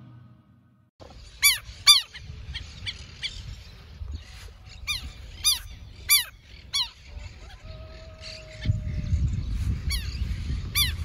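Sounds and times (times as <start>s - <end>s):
lapwing harsh alarm calls: 1.2s - 3.6s, 4.3s - 8.7s.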